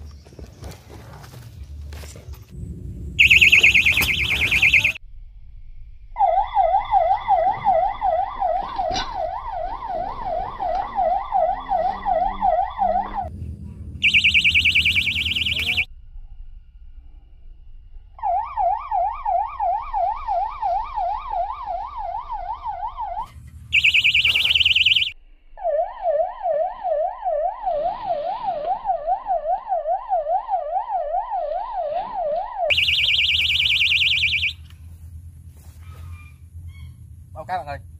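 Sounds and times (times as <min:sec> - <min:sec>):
electronic bite alarm wailing: 0:03.2 - 0:05.0, 0:06.2 - 0:13.3, 0:14.0 - 0:15.9, 0:18.2 - 0:34.7
higher faster alarm warble: 0:03.2 - 0:05.0, 0:06.2 - 0:13.3, 0:14.0 - 0:15.9, 0:18.2 - 0:34.6.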